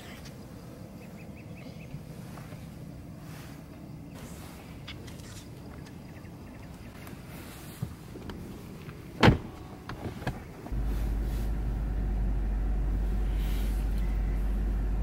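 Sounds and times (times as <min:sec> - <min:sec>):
car engine rumbling: 0:06.0 - 0:15.0
car door shutting: 0:09.2 - 0:11.7.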